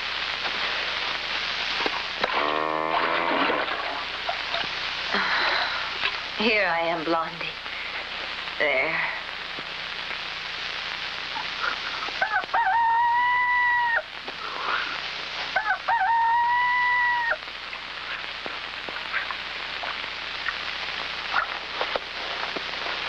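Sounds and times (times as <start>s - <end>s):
steady hiss: 0.0s - 23.0s
rooster crowing: 12.2s - 14.1s, 15.6s - 17.4s.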